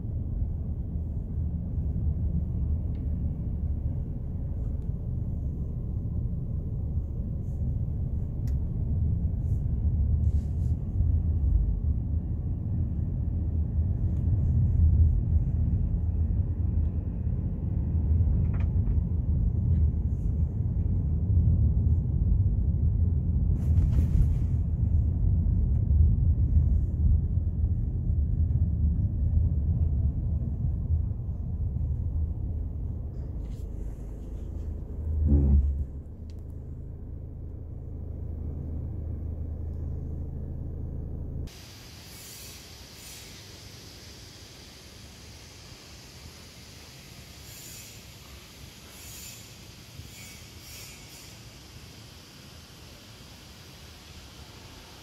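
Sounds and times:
low steady rumble: 0.0 - 55.0
brief hiss: 41.5 - 55.0.

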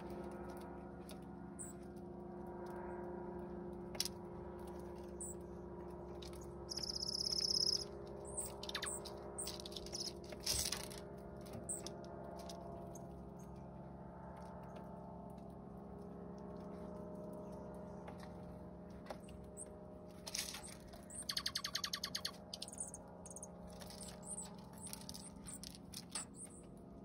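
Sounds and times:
steady low hum: 0.0 - 27.0
high pulsed bird trill: 1.6 - 1.8, 6.4 - 10.2, 20.4 - 26.6
bird pecking seeds: 6.2 - 12.9, 20.3 - 26.7.

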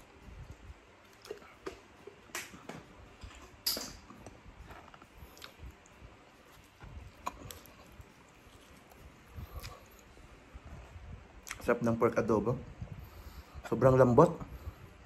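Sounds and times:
eating and chewing by hand: 0.0 - 11.8.

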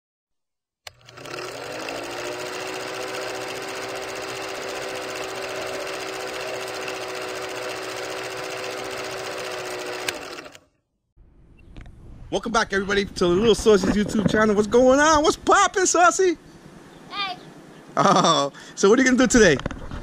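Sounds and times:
projector motor whirring: 0.9 - 10.7.

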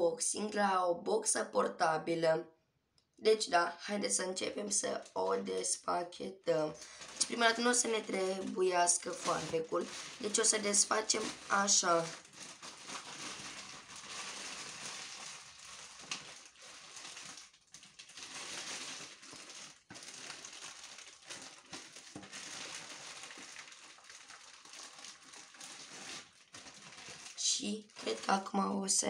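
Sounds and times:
plastic mailer bag crinkling: 6.8 - 28.5.

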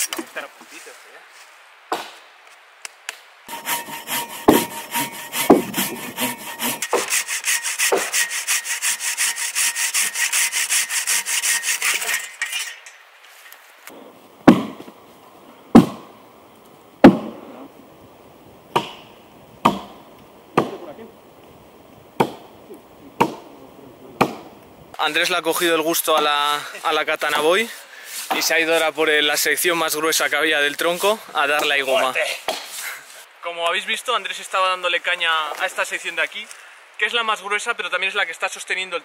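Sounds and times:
pull saw cutting wood: 3.5 - 12.8
axe chopping wood: 4.5 - 6.1, 7.9 - 8.2, 14.4 - 14.9, 15.7 - 16.1, 17.0 - 17.4, 18.7 - 19.0, 19.6 - 19.9, 20.6 - 20.8, 22.2 - 22.4, 23.2 - 23.4, 24.2 - 24.5.

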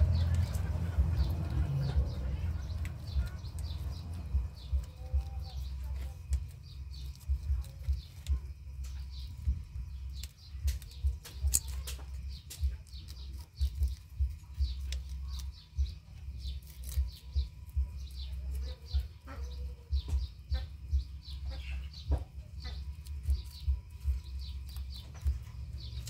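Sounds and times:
low thuds: 0.0 - 12.9
rabbit chewing greens: 0.0 - 26.0
small birds chirping: 0.0 - 26.0.

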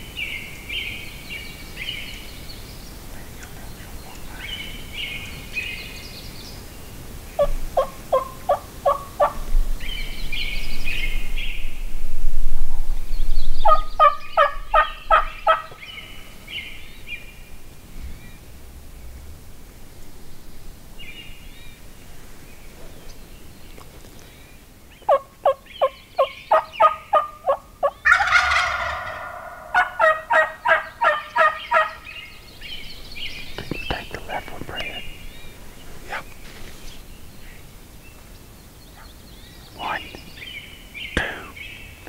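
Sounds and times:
turkey gobbling: 7.4 - 9.4, 13.6 - 15.8, 25.1 - 32.0.

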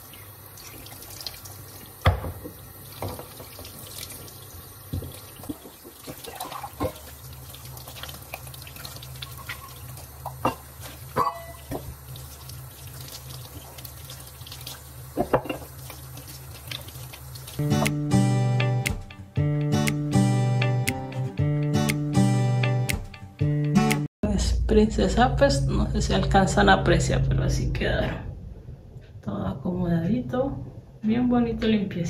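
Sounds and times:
tap running into sink: 2.0 - 3.8.

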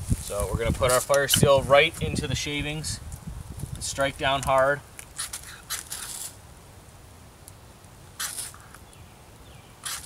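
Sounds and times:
knife scraping firesteel: 5.1 - 6.4, 8.2 - 8.8.

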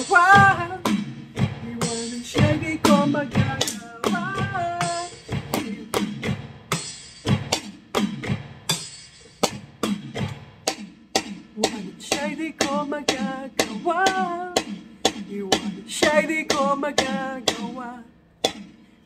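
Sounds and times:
woman singing: 0.0 - 0.9, 1.6 - 5.9, 11.6 - 14.7, 15.3 - 18.1
drum kit steady beat: 0.0 - 19.0.

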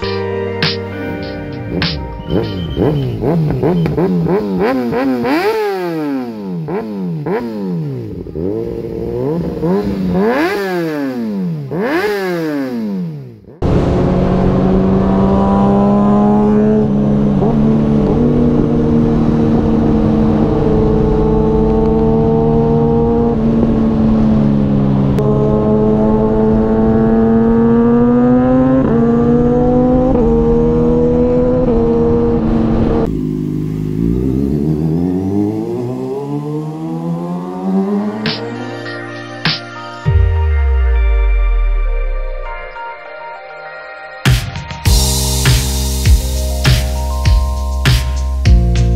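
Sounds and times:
motorcycle engine at high revs: 1.7 - 38.4.

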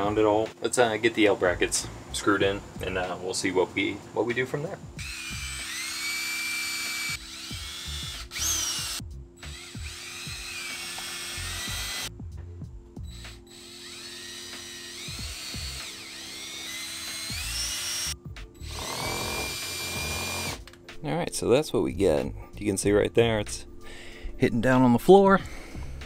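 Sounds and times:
cordless drill motor whine: 5.0 - 12.1, 13.0 - 20.6
background music held chord: 9.0 - 10.5, 11.4 - 26.0.

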